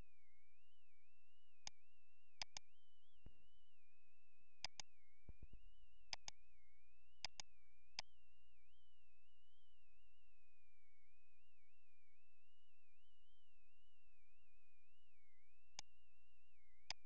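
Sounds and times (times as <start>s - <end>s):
faint high whine: 0.0s - 17.0s
computer mouse clicking: 2.4s - 2.6s, 4.6s - 4.9s, 6.1s - 6.4s, 7.2s - 7.5s.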